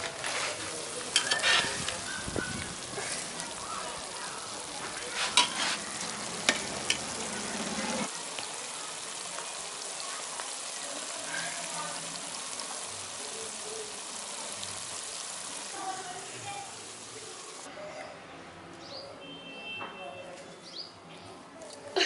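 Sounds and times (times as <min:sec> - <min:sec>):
gravy sizzling and bubbling: 0:00.0 - 0:17.7
spatula scraping a pan: 0:00.2 - 0:02.0, 0:04.8 - 0:07.2.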